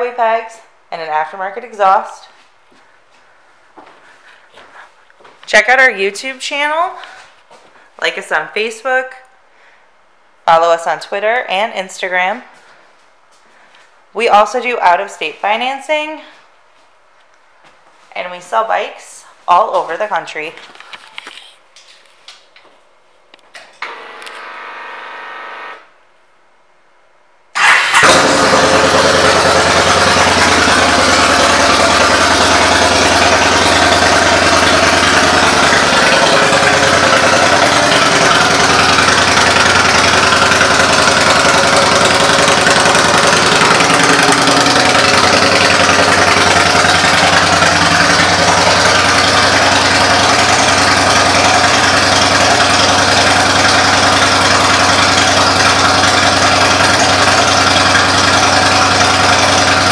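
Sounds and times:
steady hum: 23.3 - 27.6
motorcycle engine starting and idling: 23.6 - 26.0, 27.6 - 59.9.

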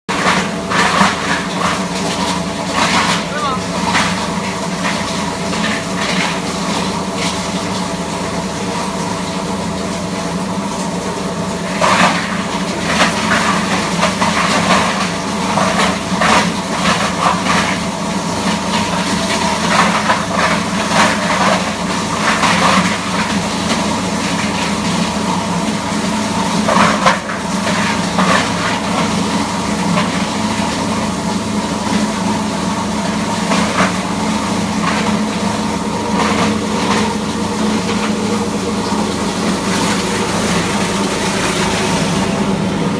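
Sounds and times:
granulator humming: 2.7 - 4.8.

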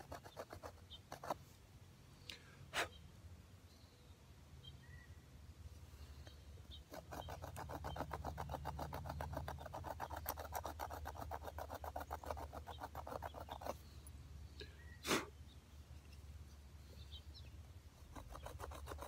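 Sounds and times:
flint scraping wood: 0.0 - 1.4, 6.7 - 13.9, 18.0 - 19.0.

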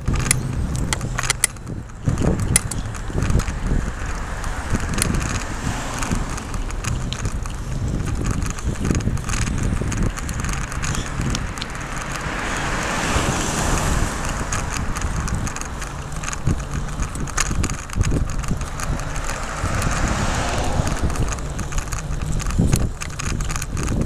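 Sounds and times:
bike rattling clicks and knocks: 0.0 - 24.0
wind rumbling on microphone: 0.0 - 24.0.

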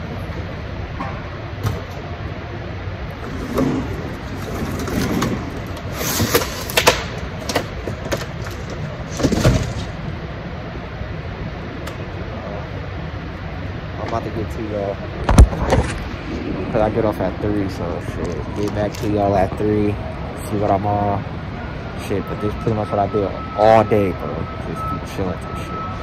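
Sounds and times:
steady machine hum: 0.0 - 26.0
cardboard boxes scraping: 3.3 - 6.8.

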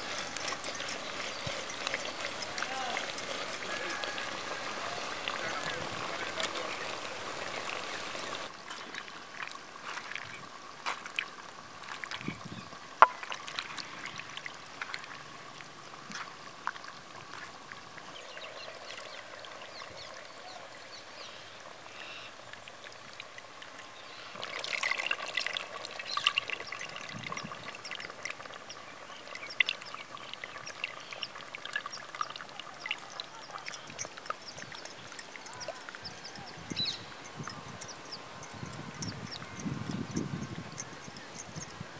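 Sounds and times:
water pouring into a clay pot: 24.4 - 41.8
small splashes and clicks: 26.0 - 41.7.

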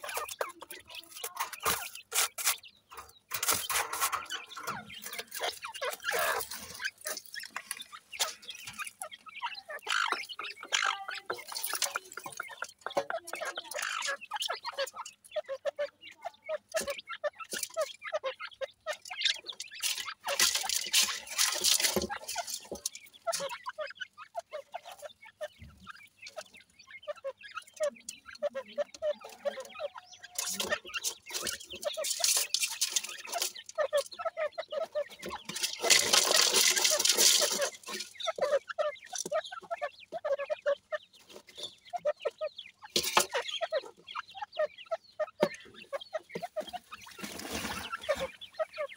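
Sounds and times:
birds clucking and peeping: 0.0 - 48.9
gravel rustling: 19.4 - 24.0, 29.3 - 40.0.

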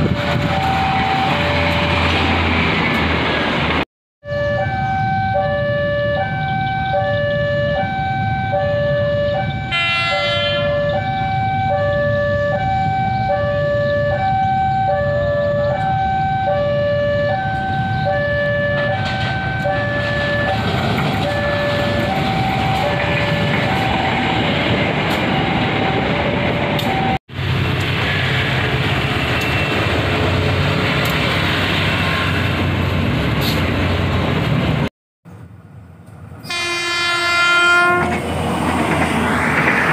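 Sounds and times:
train passing: 0.0 - 3.8, 4.5 - 39.9
level crossing alarm two tones: 0.5 - 2.6, 4.2 - 24.5.

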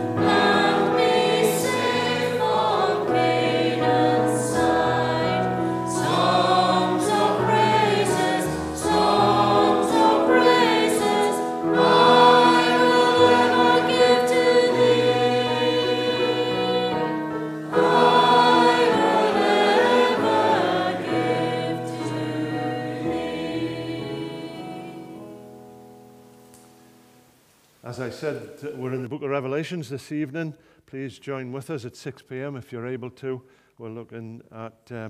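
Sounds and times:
congregation singing a hymn: 0.0 - 25.7.

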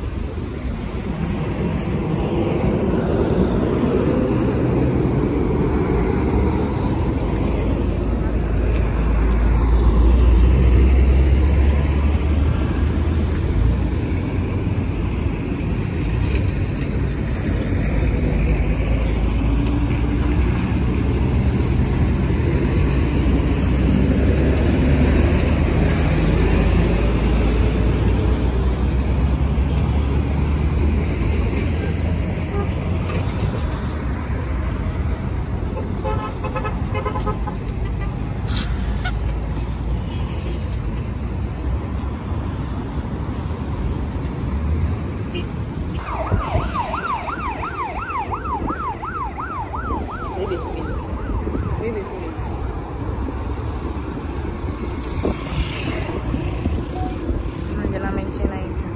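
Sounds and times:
busy highway traffic rumble: 0.0 - 58.9
vehicle horn tooting: 36.0 - 37.4.

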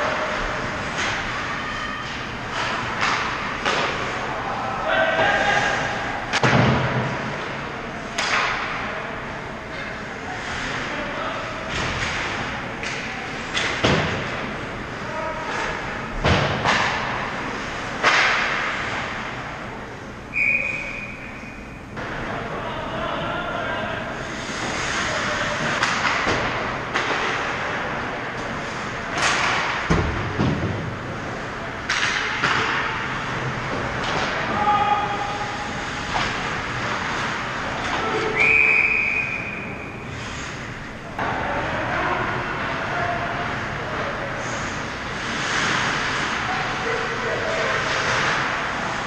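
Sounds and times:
sticks and puck clacking: 0.0 - 4.4, 5.2 - 8.9, 11.7 - 14.6, 15.4 - 19.4, 24.3 - 38.5, 40.1 - 49.0
hockey sticks cracking on puck: 8.2 - 8.8, 11.7 - 14.4, 17.9 - 19.1, 24.5 - 30.8, 31.8 - 34.6
skates hissing on ice: 24.2 - 25.5, 44.4 - 46.5
skates scraping ice: 24.2 - 29.9, 44.4 - 49.0.

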